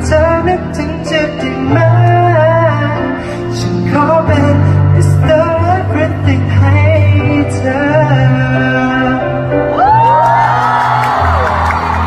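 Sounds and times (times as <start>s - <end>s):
man singing: 0.0s - 9.7s
pop backing music: 0.0s - 12.0s
crowd screaming and cheering: 9.4s - 12.0s.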